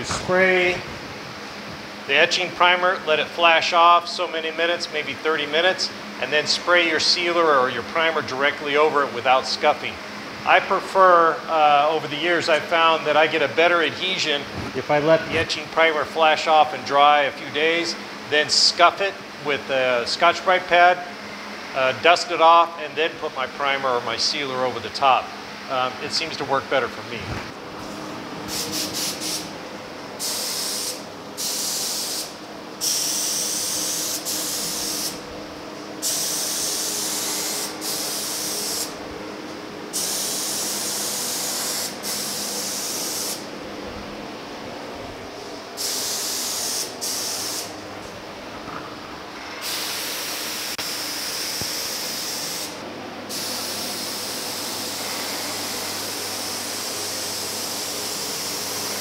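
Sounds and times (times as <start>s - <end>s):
spray gun hissing: 27.8s - 29.5s, 30.2s - 35.2s, 36.0s - 39.0s, 39.9s - 43.5s, 45.8s - 47.8s, 49.6s - 59.0s.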